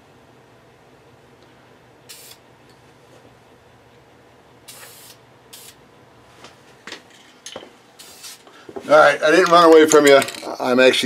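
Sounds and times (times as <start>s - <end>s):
spray-paint can spraying: 2.1s - 2.4s, 4.7s - 5.8s, 8.0s - 8.4s.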